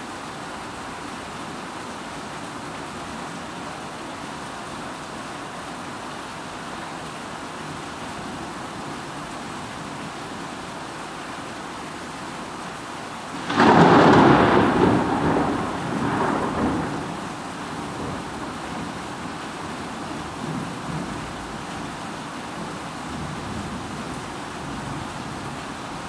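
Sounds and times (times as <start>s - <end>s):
steady rain: 0.0s - 26.0s
thunder rumbling: 13.4s - 18.9s.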